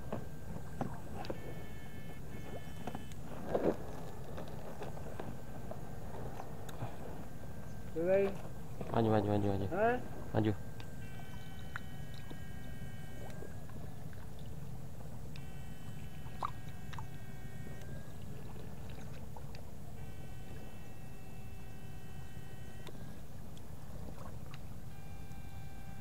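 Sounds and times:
water sloshing and splashing: 0:00.0 - 0:26.0
high electronic whine: 0:09.7 - 0:13.7.

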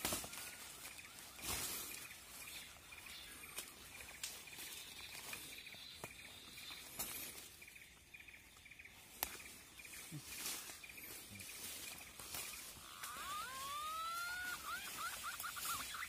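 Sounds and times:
bamboo poles clicking and knocking: 0:00.0 - 0:00.5, 0:09.1 - 0:09.6
high chirp repeating: 0:12.6 - 0:16.0.

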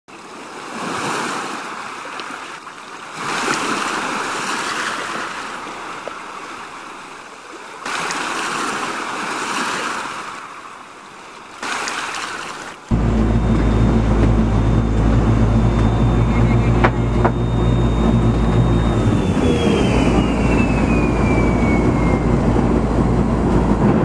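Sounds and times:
sea surf washing in: 0:00.1 - 0:15.7.

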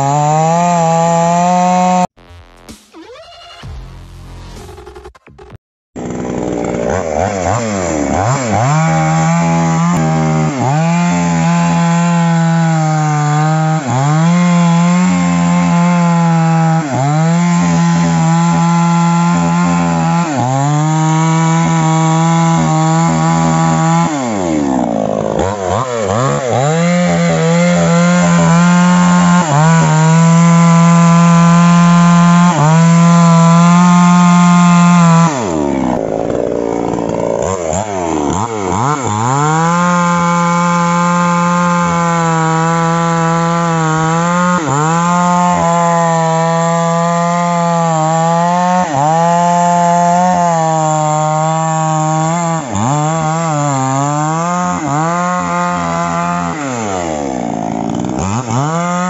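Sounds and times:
chainsaw cutting wood: 0:00.0 - 0:59.0.

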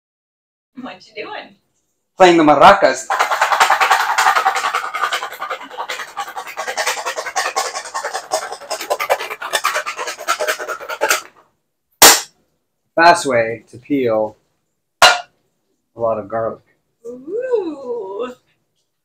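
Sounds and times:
garlic rattling in steel bowls: 0:03.0 - 0:11.3
loud sharp bang: 0:12.0 - 0:12.3, 0:15.0 - 0:15.3.

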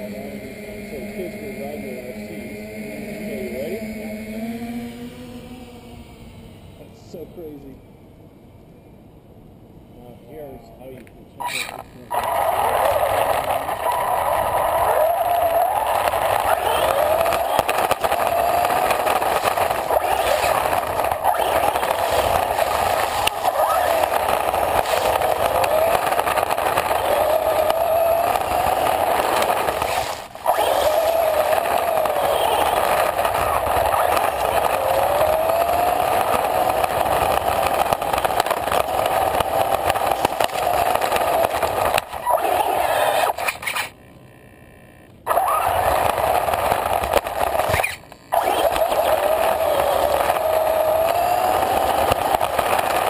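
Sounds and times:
electric motor whine: 0:00.0 - 0:07.5, 0:11.5 - 0:44.0, 0:45.3 - 0:53.0
rc car wheels rolling rumble: 0:10.0 - 0:44.2, 0:45.2 - 0:53.0.

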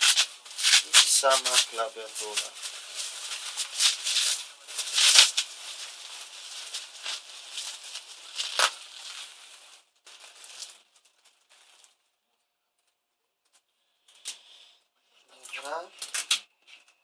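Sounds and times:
plastic packaging crinkling: 0:00.0 - 0:12.1, 0:15.4 - 0:17.0.

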